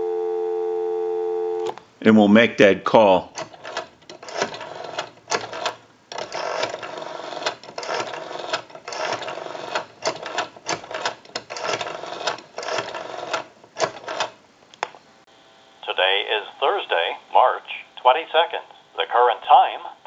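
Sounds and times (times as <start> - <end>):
rotary telephone dial whirring: 3.4 - 14.4.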